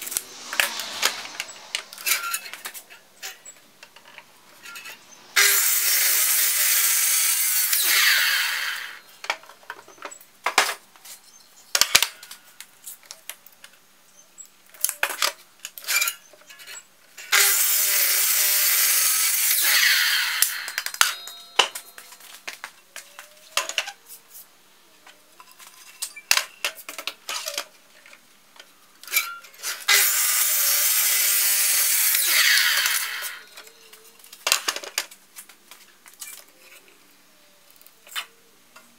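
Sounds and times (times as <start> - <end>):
miter saw cutting wood: 0.0 - 3.5, 4.6 - 9.1, 17.3 - 21.0, 29.8 - 33.7
saw motor winding down: 5.4 - 9.0, 17.3 - 21.0, 29.9 - 33.6.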